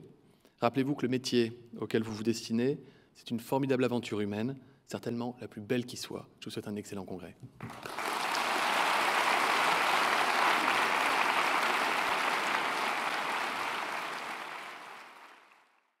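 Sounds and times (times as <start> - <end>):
audience applauding: 7.6 - 15.9.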